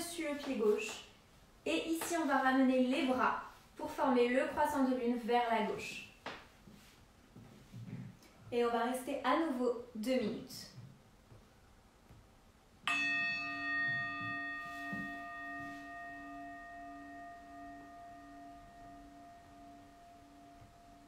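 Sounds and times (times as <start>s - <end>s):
singing bowl chime ringing: 12.9s - 21.0s.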